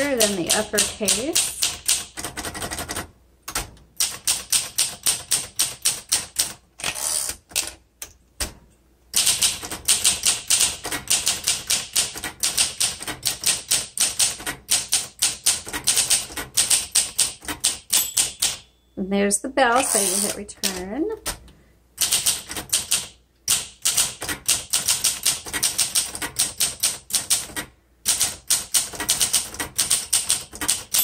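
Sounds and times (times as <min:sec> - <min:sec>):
manual typewriter key strikes: 0:09.2 - 0:18.6, 0:22.0 - 0:31.0.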